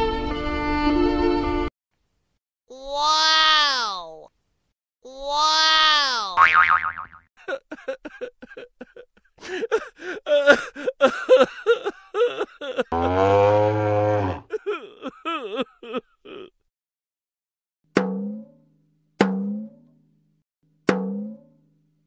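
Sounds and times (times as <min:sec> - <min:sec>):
man groaning: 0:09.5 - 0:13.4, 0:14.0 - 0:16.6.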